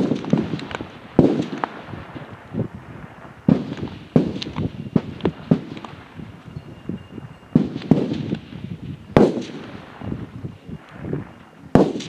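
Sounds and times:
rifle shots with echo: 0.0 - 2.4, 3.4 - 6.2, 7.5 - 12.0.

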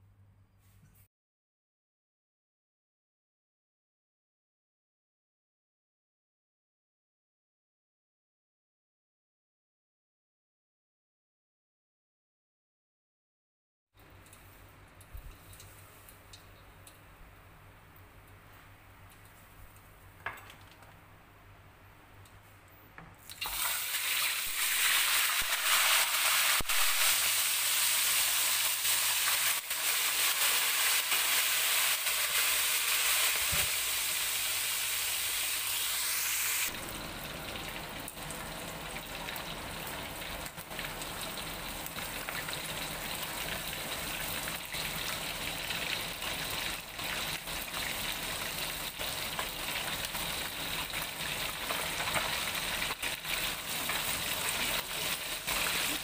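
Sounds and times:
fish sizzling in hot oil: 23.4 - 56.0.

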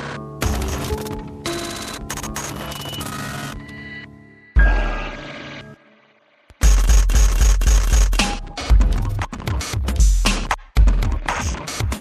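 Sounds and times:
electronic music with deep bass: 6.5 - 12.0.

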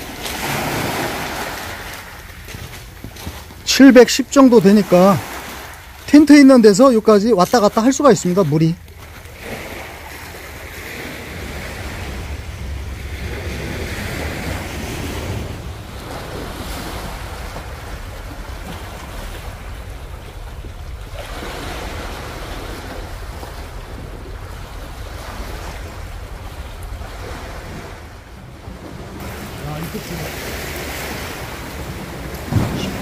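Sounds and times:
small waves washing onto shore: 0.0 - 33.0
wind rumbling on microphone: 8.8 - 33.0.

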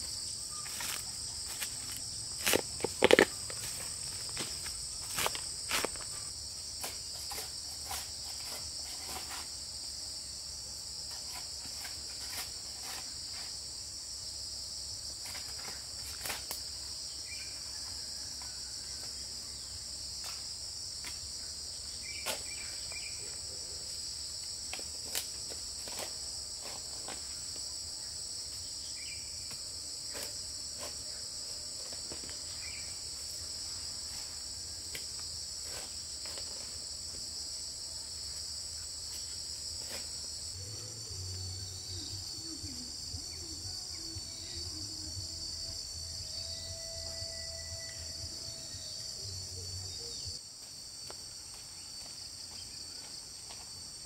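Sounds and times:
insects chirring: 0.0 - 54.0.

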